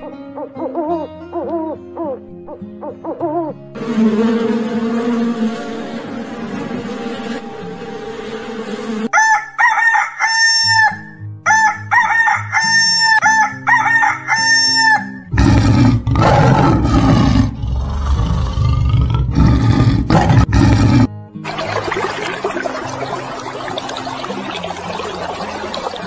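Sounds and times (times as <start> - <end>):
rooster crowing: 5.4 - 15.3.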